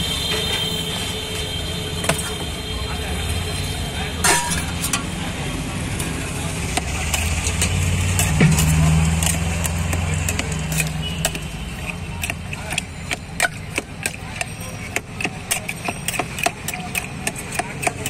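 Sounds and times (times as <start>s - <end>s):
spoon clinking against metal mug: 10.3s - 18.0s.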